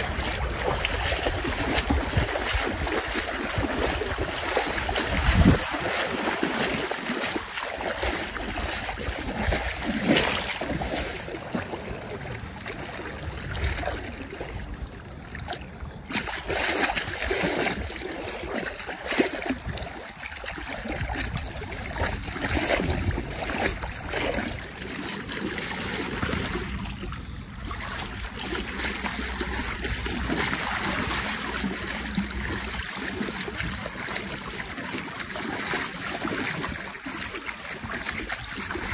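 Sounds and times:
water splashing and sloshing: 0:00.0 - 0:38.9.

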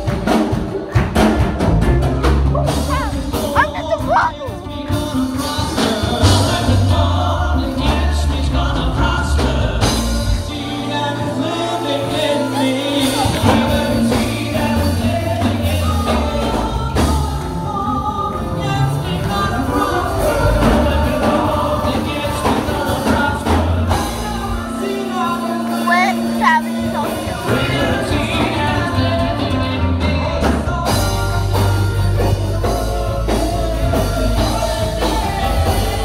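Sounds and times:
people singing: 0:00.0 - 0:36.0
worship music over speakers: 0:00.0 - 0:36.0
bass line: 0:01.2 - 0:36.0.

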